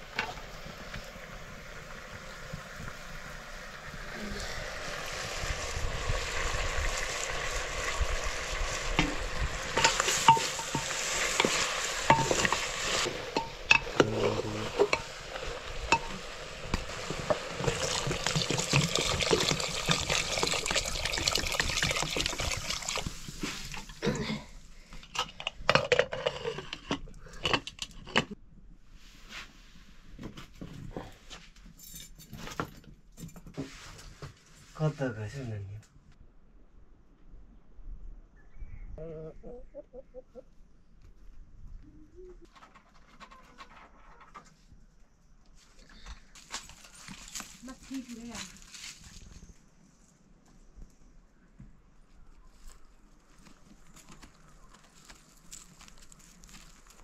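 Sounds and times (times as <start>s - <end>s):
meat sizzling in a pan: 0.6s - 23.1s
metal ladle scraping a pan: 9.7s - 16.2s
metal lid clanking: 9.8s - 15.1s.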